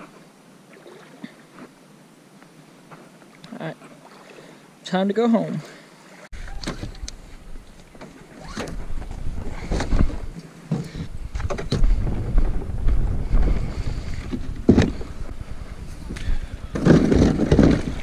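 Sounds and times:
wind buffeting microphone: 0:08.4 - 0:18.0.

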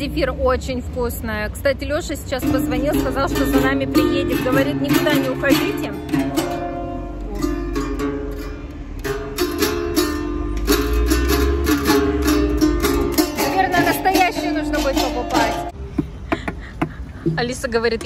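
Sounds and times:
ukulele background music: 0:02.4 - 0:15.8.

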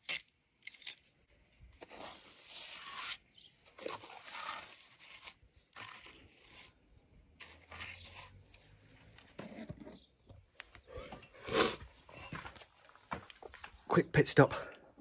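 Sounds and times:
trowel scraping wet cement: 0:01.8 - 0:10.0.

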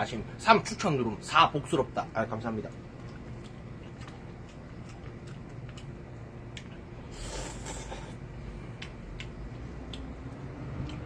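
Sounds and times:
loud airy noodle slurp: 0:07.1 - 0:08.2.

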